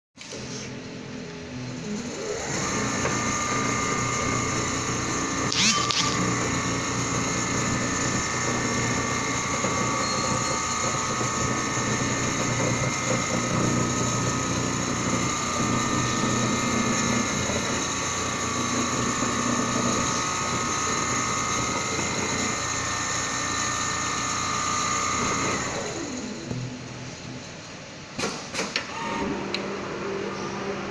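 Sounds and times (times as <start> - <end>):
sewing machine stitching: 1.8 - 26.6.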